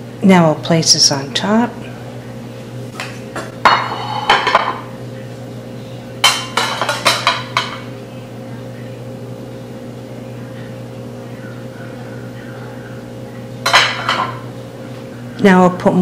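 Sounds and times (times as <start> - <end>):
steady low hum: 0.0 - 16.0
metal spatula clinking on plates: 6.2 - 7.8.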